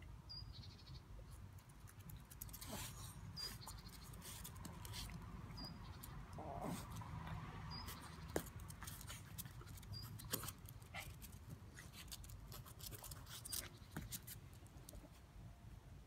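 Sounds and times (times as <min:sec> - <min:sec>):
claws scratching and clicking: 0:01.5 - 0:07.1, 0:07.8 - 0:15.0.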